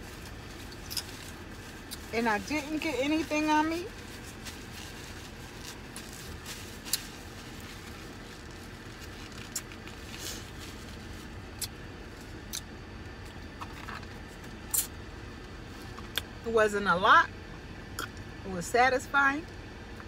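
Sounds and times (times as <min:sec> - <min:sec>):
paper wrapper crinkling: 0:00.0 - 0:11.6
car interior hum: 0:00.0 - 0:20.0.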